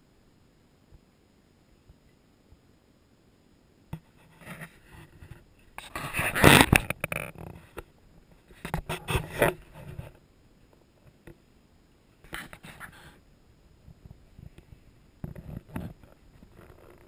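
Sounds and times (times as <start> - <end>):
rustling and scraping: 4.0 - 11.4, 12.2 - 13.2, 13.8 - 17.0.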